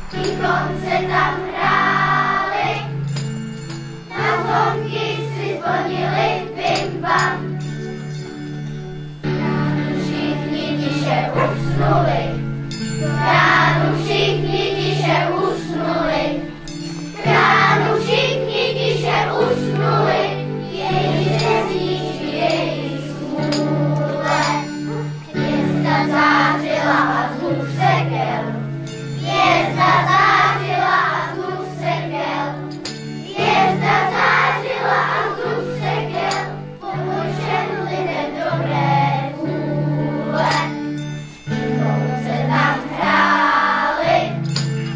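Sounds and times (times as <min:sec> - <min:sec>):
children's choir singing: 0:00.0 - 0:08.1, 0:08.8 - 0:40.8, 0:41.5 - 0:44.9
instrumental accompaniment with bass: 0:00.0 - 0:44.9.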